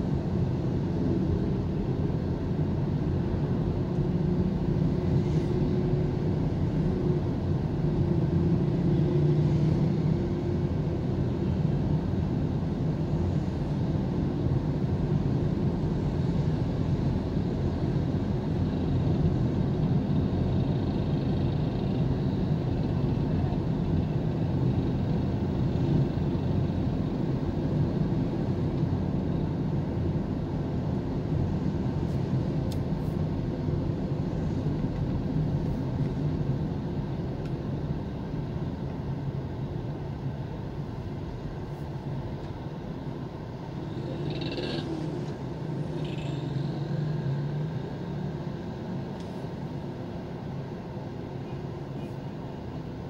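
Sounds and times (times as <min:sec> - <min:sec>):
car engine and road noise: 0:00.0 - 0:53.0.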